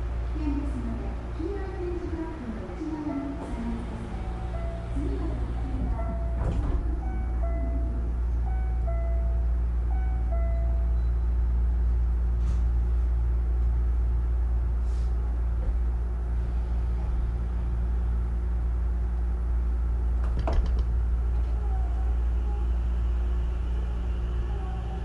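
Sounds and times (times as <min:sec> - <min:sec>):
train running gear rumble: 0:00.0 - 0:25.0
faint inverter tone: 0:07.0 - 0:11.4.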